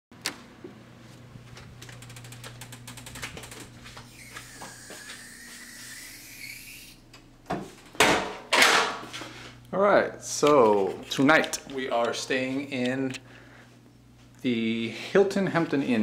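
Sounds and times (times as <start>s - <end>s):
ratcheting clicks: 1.8s - 3.6s
door squeaking: 3.4s - 7.0s
door thud: 7.5s - 9.0s.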